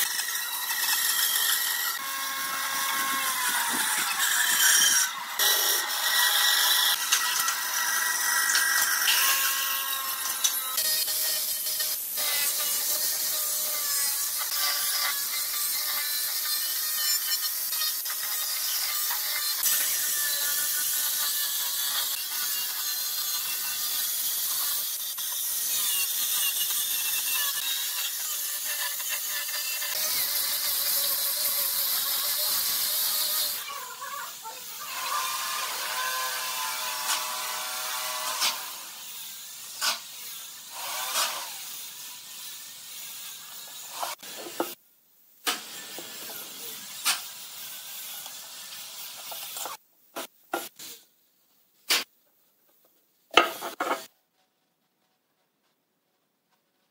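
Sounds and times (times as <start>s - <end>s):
angle grinder sanding wood: 0.0s - 44.8s.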